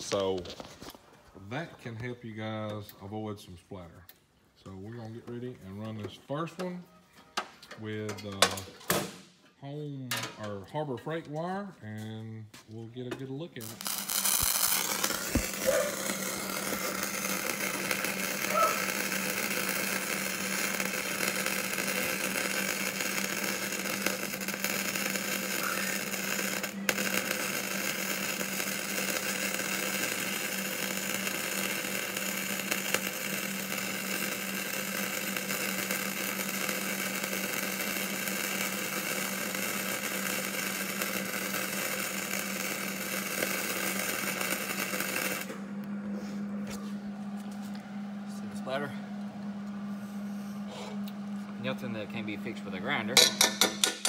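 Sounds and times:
welding arc crackling: 0.0s - 2.8s, 13.5s - 46.0s, 51.6s - 54.0s
steady hum: 13.5s - 54.0s.

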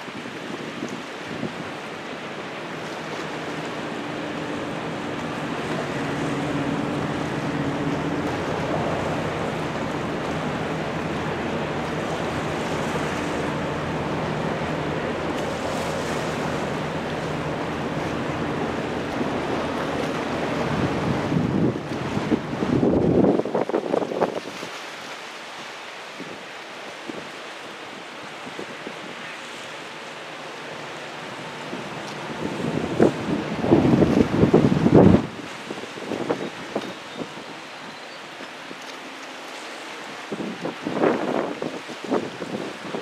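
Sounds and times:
wind buffeting microphone: 0.0s - 24.7s, 31.6s - 37.6s, 40.2s - 43.0s
water rushing along ship hull: 0.0s - 43.0s
faint low engine hum: 2.7s - 23.0s.

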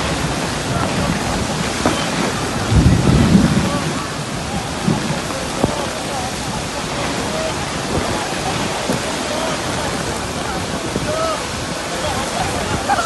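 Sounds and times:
low rumble: 0.0s - 5.7s
heavy rain pouring: 0.0s - 13.0s.

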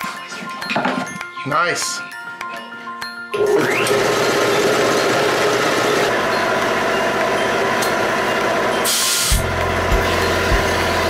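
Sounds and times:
air compressor running: 3.4s - 11.0s
short air hiss: 8.9s - 9.4s.

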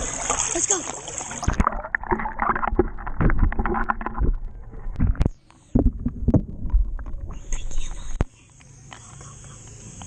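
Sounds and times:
underwater knocks and sloshes: 0.0s - 7.5s
muffled underwater rumble: 1.5s - 8.3s.

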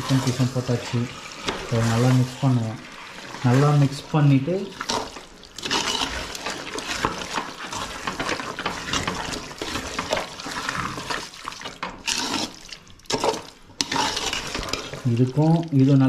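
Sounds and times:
spoon scraping metal pot: 0.0s - 2.2s, 4.7s - 15.1s
wet squelching and sloshing: 0.1s - 15.9s.

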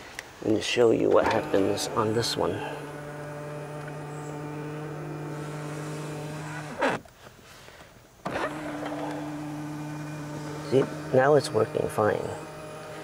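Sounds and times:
seat motor humming: 1.0s - 7.0s, 8.3s - 13.0s
seat motor click: 1.0s - 7.1s, 8.2s - 13.0s
seat motor knock: 1.3s - 6.8s.

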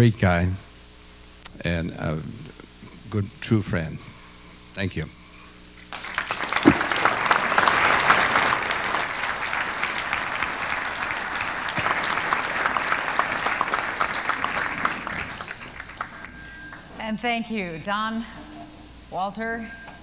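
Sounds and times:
audience applauding: 5.9s - 16.8s.

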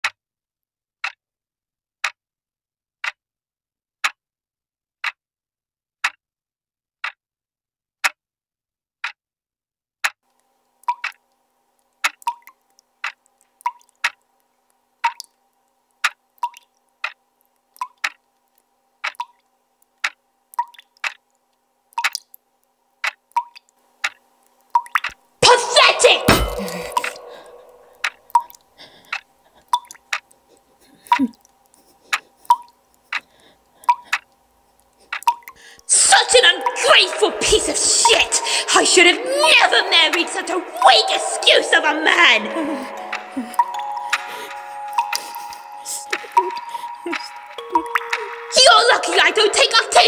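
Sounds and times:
pendulum clock ticking: 10.8s - 11.2s, 12.0s - 14.2s, 15.0s - 15.3s, 19.0s - 19.4s, 23.0s - 34.4s, 35.1s - 50.0s
water dripping from a tap: 10.8s - 11.2s, 12.1s - 14.2s, 15.0s - 15.4s, 16.1s - 18.2s, 19.0s - 21.2s, 22.0s - 22.4s, 23.0s - 25.2s, 26.6s - 30.3s, 32.4s - 33.2s, 35.1s - 35.6s, 43.1s - 48.6s.

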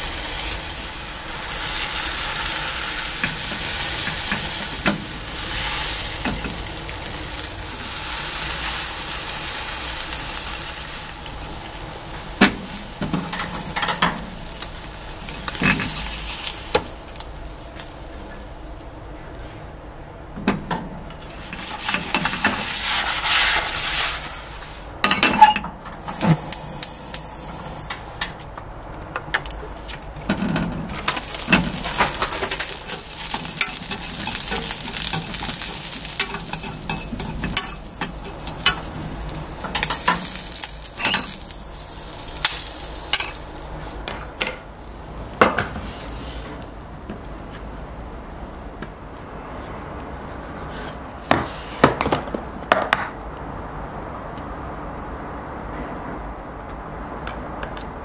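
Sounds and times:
sausages sizzling in oil: 0.0s - 18.6s, 30.9s - 47.9s
chopsticks scraping a pan: 21.3s - 24.4s, 31.0s - 43.4s.

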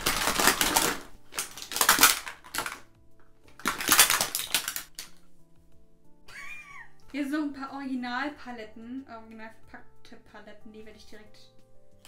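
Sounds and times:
plastic items clattering: 0.0s - 5.3s.

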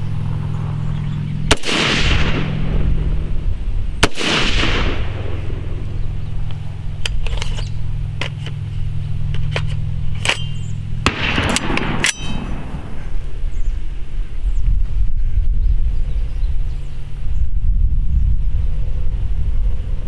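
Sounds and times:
steady low rumble: 0.0s - 20.0s
rifle shot with ringing echo: 1.4s - 3.4s, 4.0s - 6.1s, 10.2s - 13.4s
sharp metallic clicks and clangs: 9.3s - 12.9s.

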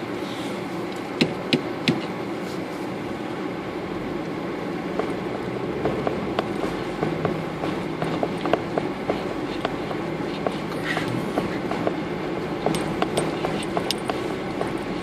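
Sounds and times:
vehicle engine and road noise: 0.0s - 15.0s
vehicle knocks and clatters: 4.9s - 15.0s.

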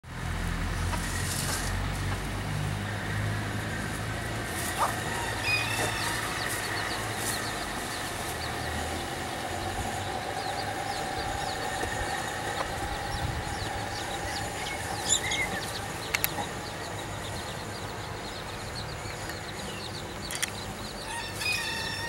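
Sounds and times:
low background rumble: 0.1s - 21.1s
small bird chirps: 10.4s - 22.0s.

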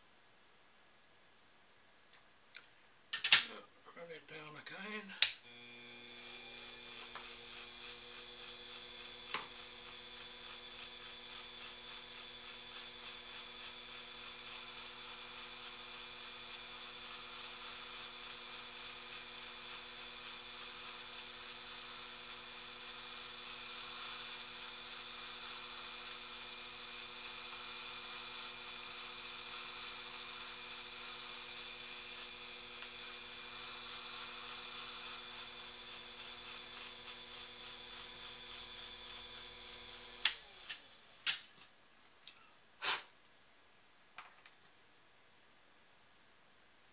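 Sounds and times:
small electric motor buzzing: 5.4s - 41.7s
high hiss: 42.8s - 43.2s.

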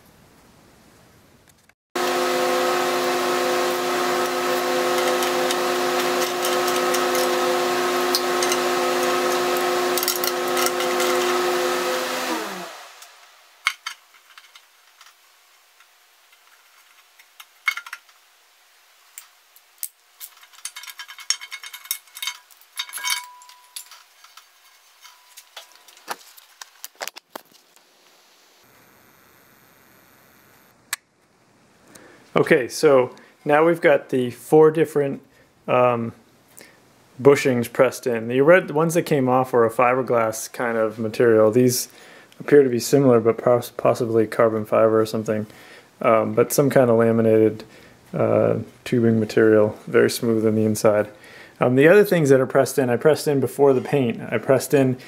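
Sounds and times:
power tool motor running: 2.0s - 13.4s, 27.8s - 30.8s
metal tools clinking: 4.9s - 11.4s, 20.2s - 26.4s.

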